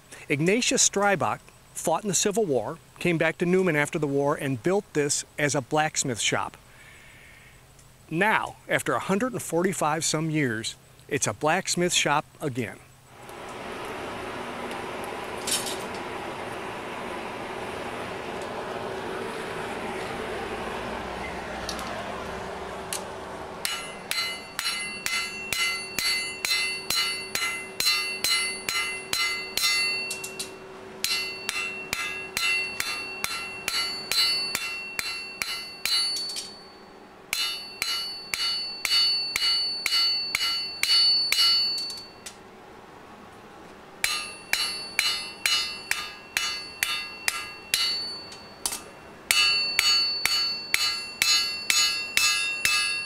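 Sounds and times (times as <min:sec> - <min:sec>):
hammer on anvil ringing: 0:23.6 - 0:42.3, 0:44.0 - 0:53.0.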